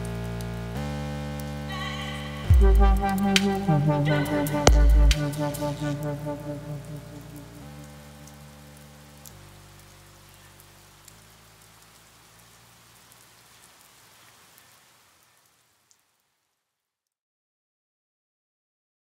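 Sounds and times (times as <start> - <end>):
low ambient drone: 0.0 - 9.9
steady hiss: 0.0 - 16.4.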